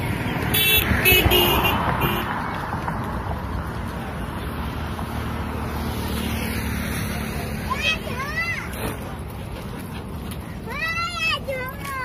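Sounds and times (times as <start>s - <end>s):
road traffic noise: 0.0s - 12.0s
vehicle horn beeps: 0.5s - 2.3s.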